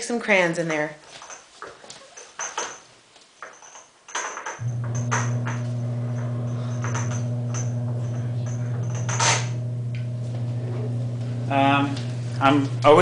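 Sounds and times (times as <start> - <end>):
steady low hum: 4.6 - 13.0.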